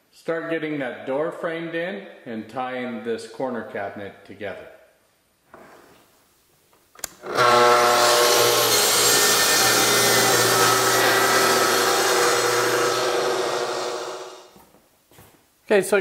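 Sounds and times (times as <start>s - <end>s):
track saw cutting plywood: 7.2s - 14.5s.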